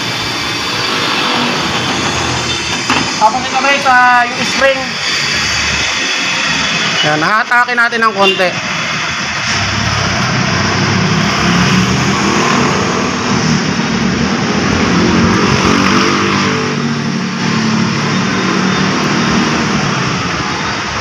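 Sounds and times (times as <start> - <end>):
engine running: 8.9 - 21.0.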